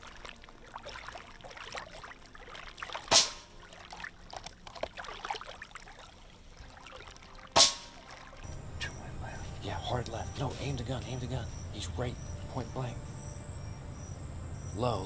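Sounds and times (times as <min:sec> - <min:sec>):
air rifle firing: 0:07.6 - 0:07.9.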